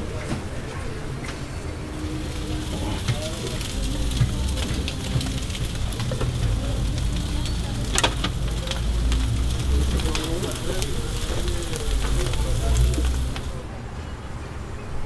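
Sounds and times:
food sizzling on a griddle: 0:02.0 - 0:13.6.

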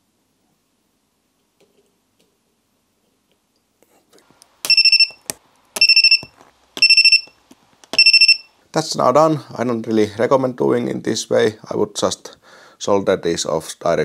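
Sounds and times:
high-pitched welder buzzer beep: 0:04.7 - 0:05.2, 0:05.8 - 0:08.6.

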